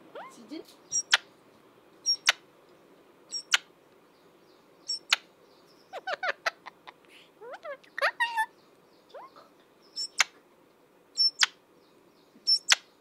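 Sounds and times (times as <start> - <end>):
parakeet squawking: 0.1 - 1.3, 2.0 - 2.4, 5.9 - 10.4.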